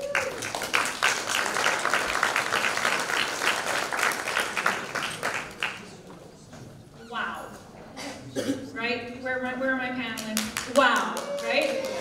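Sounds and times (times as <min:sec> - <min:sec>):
audience applauding: 0:00.0 - 0:06.0, 0:10.6 - 0:12.0.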